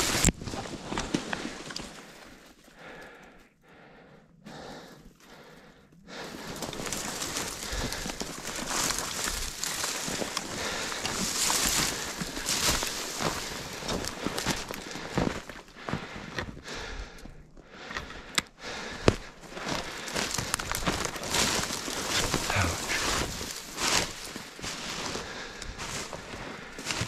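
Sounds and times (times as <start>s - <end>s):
footsteps crunching through undergrowth: 6.3s - 16.2s, 19.2s - 27.0s.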